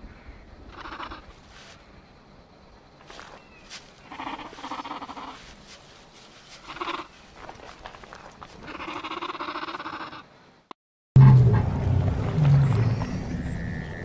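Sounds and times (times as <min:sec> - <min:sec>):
rough drawn-out dinosaur calls: 0:08.6 - 0:10.3.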